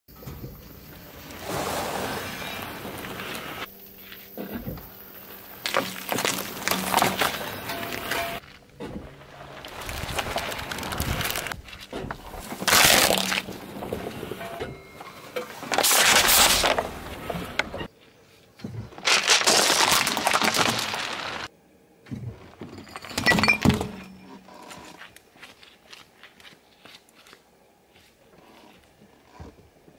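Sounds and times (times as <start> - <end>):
tyre crushing objects: 5.5 - 14.6, 15.4 - 17.8, 18.7 - 21.5
plastic bottles bursting: 5.6 - 8.4, 9.3 - 14.1, 15.5 - 17.6, 18.9 - 21.5.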